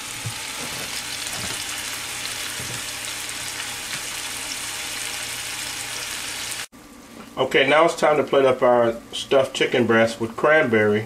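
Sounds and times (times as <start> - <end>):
chicken frying in hot oil: 0.0 - 6.7.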